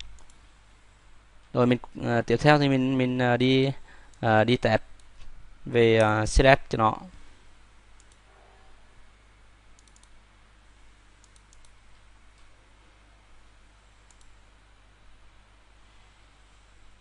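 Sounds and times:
computer mouse clicks: 0.0 - 0.4, 8.0 - 8.3, 9.8 - 10.2, 11.2 - 12.5, 14.0 - 14.4
steady low hum and hiss: 0.0 - 17.0.

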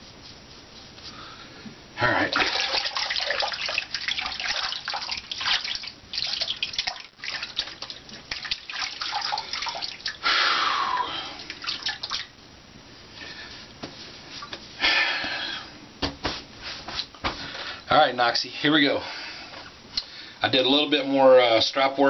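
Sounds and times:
water splashing: 2.3 - 10.2, 11.4 - 12.3.

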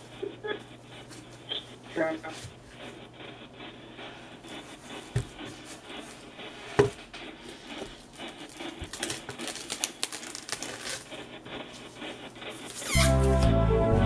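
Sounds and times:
wrapping sleeve crinkling: 8.5 - 11.2, 12.7 - 13.4.

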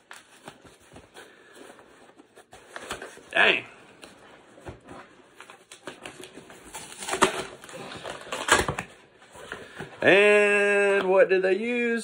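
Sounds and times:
plastic packaging rustling: 4.1 - 9.9
packaging tearing: 5.6 - 9.0.

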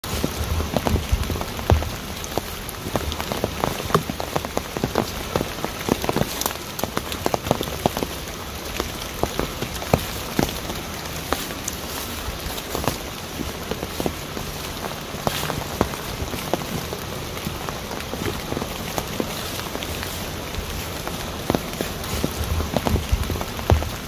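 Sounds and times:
stream rushing with splashes: 0.0 - 24.0
low thumps: 0.2 - 3.3, 22.2 - 24.0.

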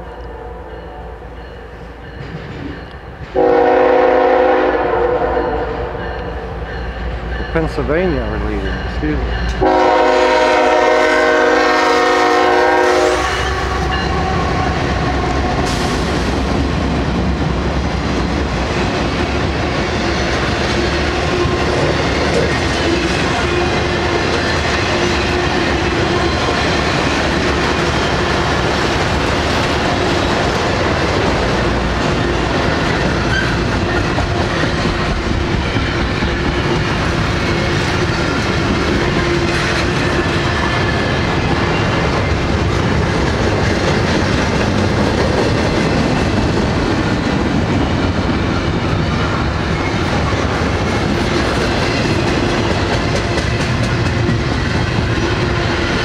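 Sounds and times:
train wheel and rail rumble: 0.0 - 56.0
train horn: 3.3 - 6.5, 9.6 - 16.0.

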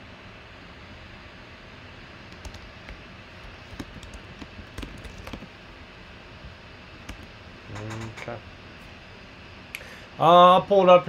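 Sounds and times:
steady background hiss: 0.0 - 11.0
keyboard typing: 2.3 - 5.6, 7.0 - 8.4.

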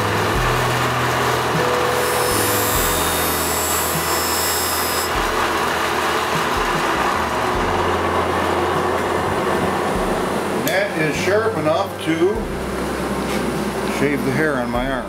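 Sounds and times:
knife-sharpening machine running: 0.0 - 14.7
knife blade grinding hiss: 1.9 - 5.2.

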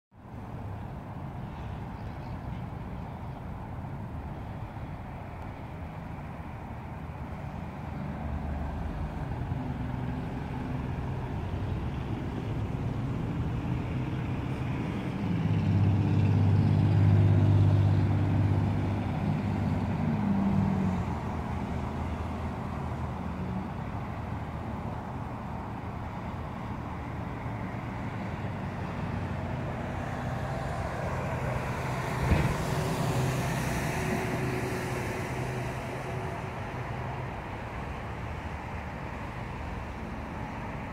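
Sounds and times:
road traffic: 0.1 - 40.9
loud low engine hum passing: 0.2 - 40.9
car passing by: 0.6 - 40.9.

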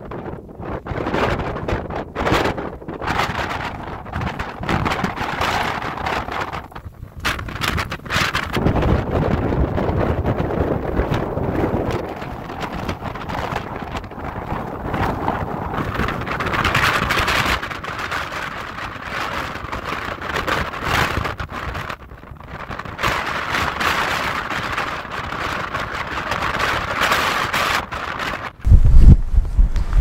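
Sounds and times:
strong wind buffeting microphone: 0.0 - 30.0.

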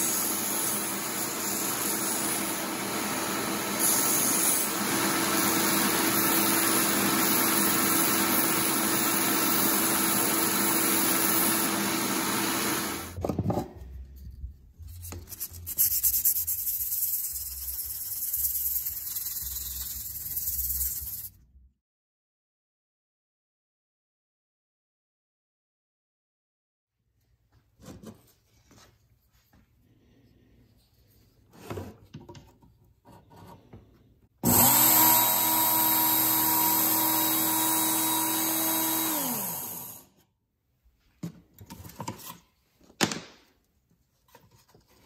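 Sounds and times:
belt sander grinding metal: 34.4 - 40.1.

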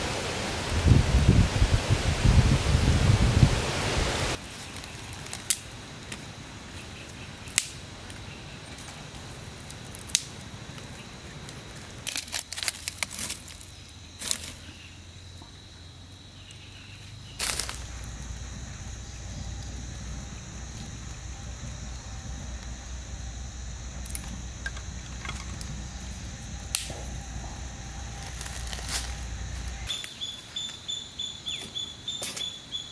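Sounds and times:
kindling catching fire: 0.0 - 30.8
small open flame burning: 0.0 - 30.9
scattered clicks: 26.7 - 27.1.

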